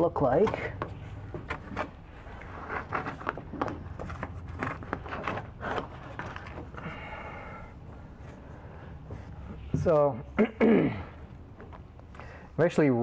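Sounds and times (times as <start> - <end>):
paper rustling and scraping: 1.0 - 6.8.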